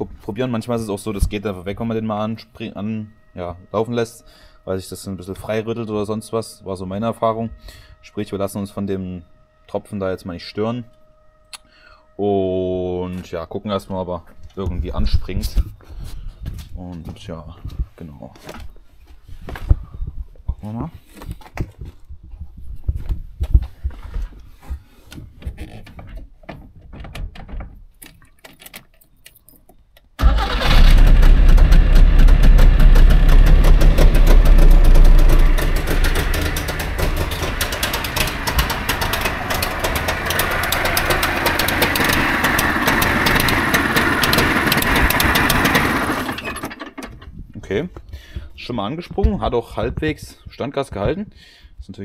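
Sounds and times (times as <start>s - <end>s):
two-stroke car engine starting and idling: 30.2s - 47.3s.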